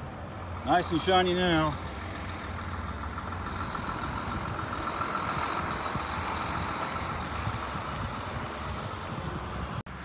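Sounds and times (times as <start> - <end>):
distant diesel locomotive rumble: 0.0 - 10.0
wind buffeting microphone: 2.0 - 10.0.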